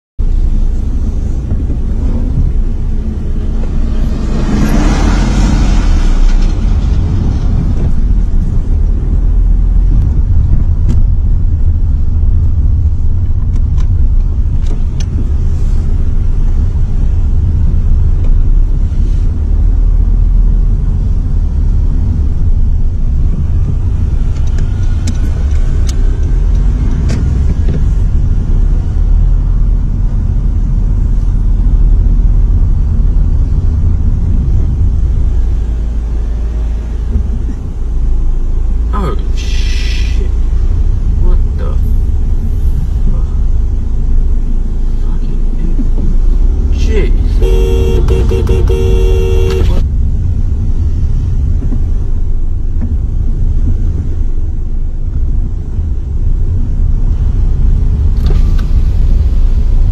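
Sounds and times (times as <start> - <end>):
car road and engine rumble: 0.2 - 59.9
rushing swell: 0.5 - 9.8.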